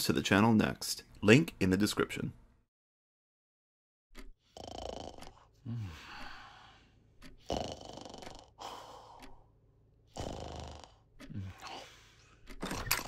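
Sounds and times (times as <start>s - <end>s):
man snoring: 4.4s - 6.2s, 7.4s - 9.2s, 10.1s - 11.9s
low snort: 7.4s - 8.5s, 10.1s - 11.9s.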